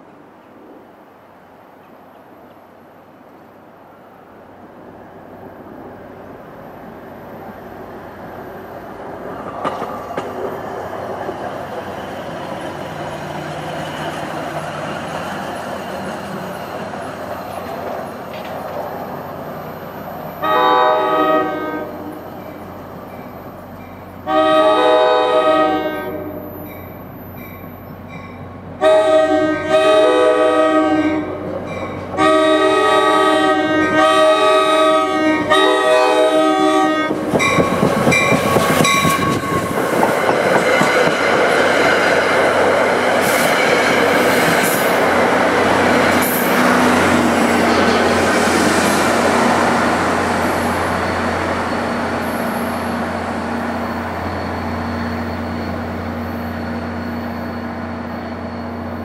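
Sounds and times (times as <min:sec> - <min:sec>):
train wheels clattering on rails: 0:09.2 - 0:19.1, 0:37.1 - 0:53.0
train air horn blasts: 0:20.4 - 0:22.2, 0:24.2 - 0:26.6, 0:28.8 - 0:31.4, 0:32.2 - 0:37.5.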